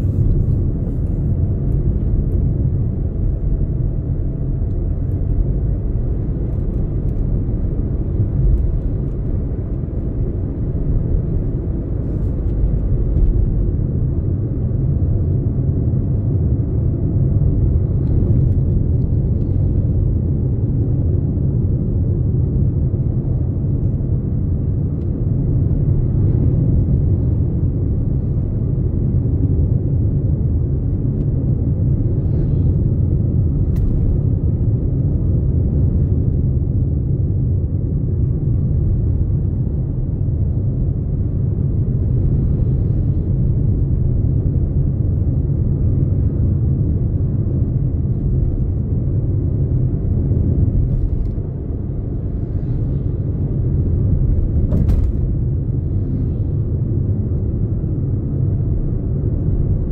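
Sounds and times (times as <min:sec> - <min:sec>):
car cabin road and engine rumble: 0:00.0 - 0:59.9.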